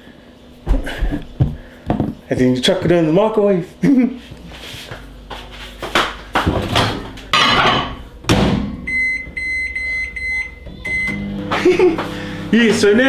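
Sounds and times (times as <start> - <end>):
microwave door clunk and knocks: 6.5 - 8.8.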